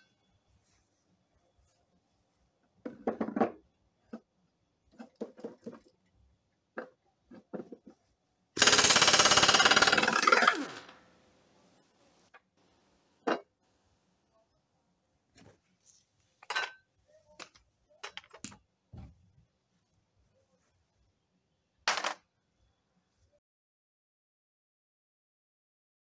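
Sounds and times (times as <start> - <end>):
impact wrench rattling: 8.6 - 10.9.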